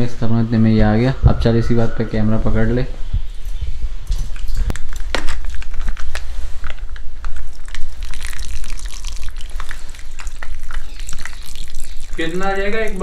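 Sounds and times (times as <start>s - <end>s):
plastic packaging crinkling: 4.4s - 13.0s.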